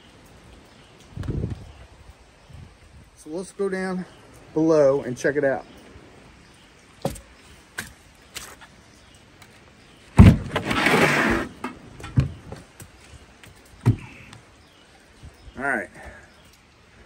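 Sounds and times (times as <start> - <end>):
hatch scraping slide: 10.5 - 11.7.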